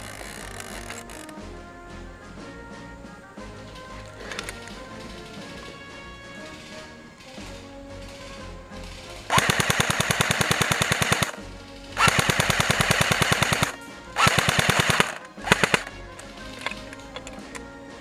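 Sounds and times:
airsoft gun firing full auto: 0:06.4 - 0:15.9.

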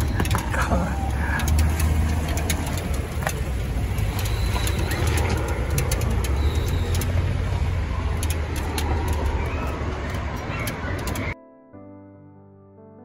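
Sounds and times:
light clicks: 0:00.0 - 0:07.2.

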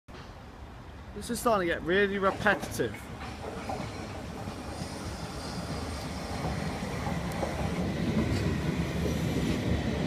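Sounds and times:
electric train rumbling past: 0:00.1 - 0:10.0.

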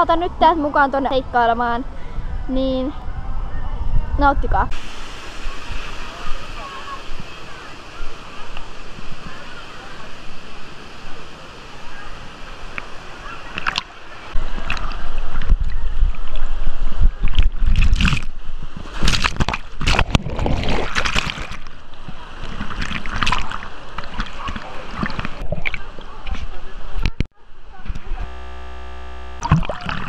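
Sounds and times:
water rushing and splashing: 0:04.6 - 0:27.3, 0:29.4 - 0:30.0.

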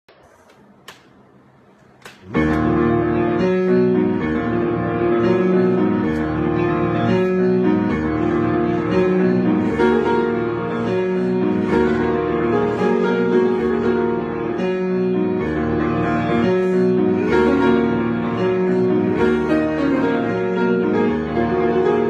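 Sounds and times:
piano playing: 0:02.2 - 0:22.0.

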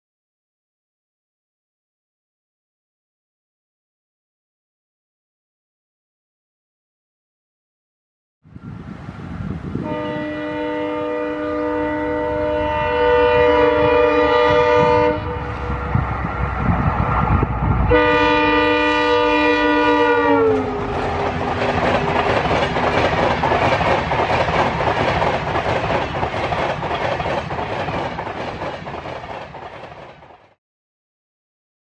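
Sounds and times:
train coaches clickety-clack: 0:09.6 - 0:30.6
locomotive horn blasts: 0:09.8 - 0:16.0, 0:17.9 - 0:21.0.

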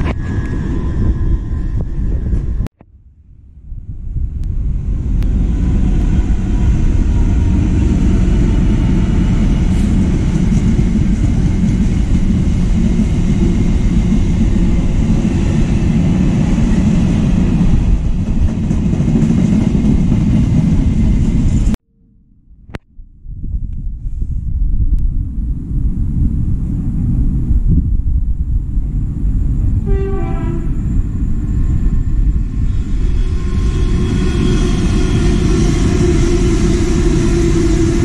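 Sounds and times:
diesel locomotive passing: 0:00.0 - 0:02.7, 0:03.4 - 0:21.8, 0:25.6 - 0:38.0
train wagons rolling on rails: 0:05.1 - 0:21.8.

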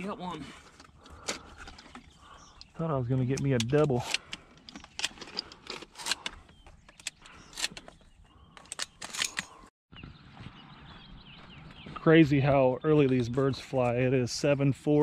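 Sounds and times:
clicks and rattles of gear: 0:03.3 - 0:09.7.

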